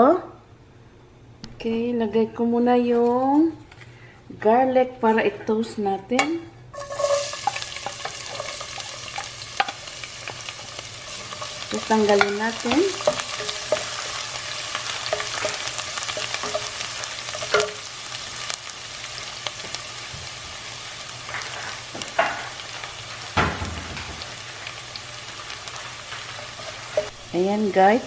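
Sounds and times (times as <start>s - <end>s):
garlic sizzling in hot oil: 6.7s - 28.0s
wooden spatula scraping pan: 6.8s - 17.6s
loud knock: 23.4s - 24.3s.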